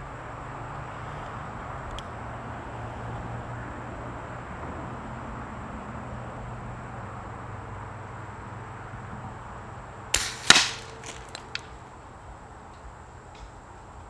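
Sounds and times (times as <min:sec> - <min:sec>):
air rifle shot crack: 0:10.2 - 0:11.7
sharp click: 0:10.2 - 0:11.7.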